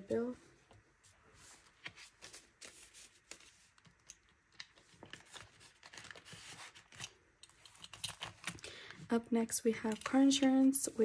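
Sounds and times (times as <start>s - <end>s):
banknotes rustling: 1.2s - 9.0s.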